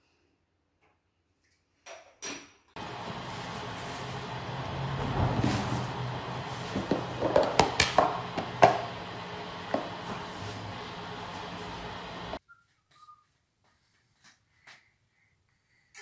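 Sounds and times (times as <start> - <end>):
plastic bag rustling: 2.8 - 7.2.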